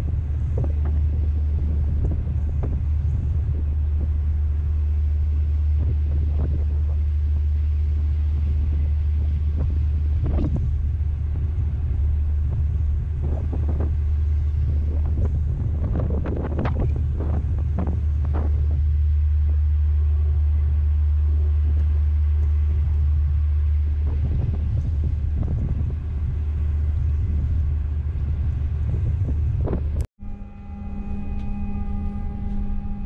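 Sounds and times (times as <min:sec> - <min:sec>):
ferry engine rumble: 0:00.0 - 0:33.0
wind on microphone: 0:00.0 - 0:33.0
held tones: 0:30.2 - 0:33.0.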